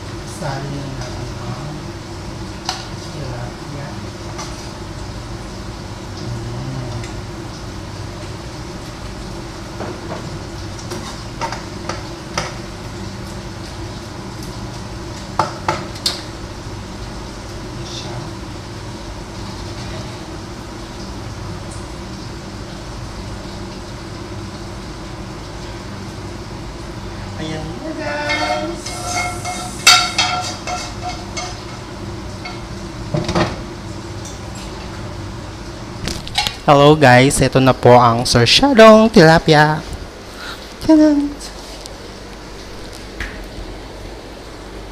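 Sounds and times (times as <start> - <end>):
steady low hum: 0.0 - 44.9
spatula stirring and knocking pan: 28.1 - 33.5.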